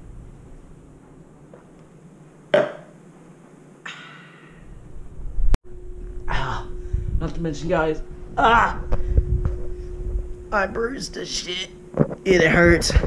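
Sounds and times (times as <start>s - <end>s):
breathy exhale: 3.8s - 4.8s.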